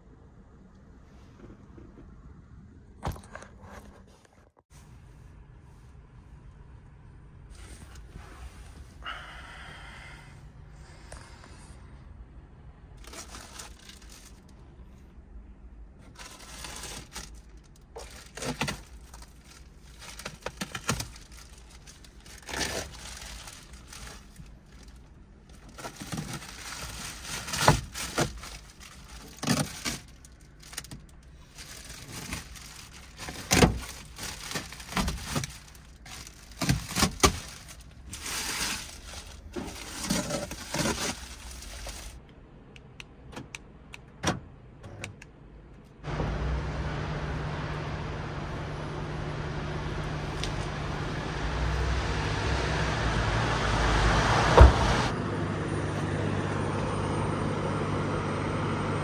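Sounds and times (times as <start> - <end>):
rustling: 13.0 - 14.7, 16.0 - 42.2
knocks and bumps in a car: 54.2 - 55.1.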